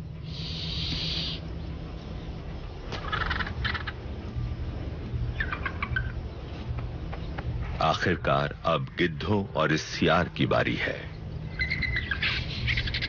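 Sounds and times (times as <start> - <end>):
vultures harsh raspy calls: 0.0 - 1.5, 2.8 - 4.2, 11.5 - 13.0
low steady drone: 0.0 - 13.0
hiss: 0.2 - 1.4.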